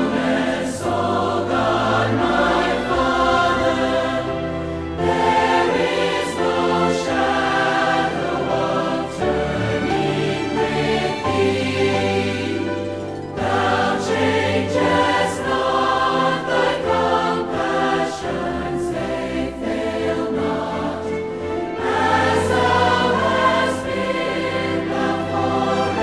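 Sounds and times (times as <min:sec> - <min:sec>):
choir singing: 0:00.0 - 0:26.0.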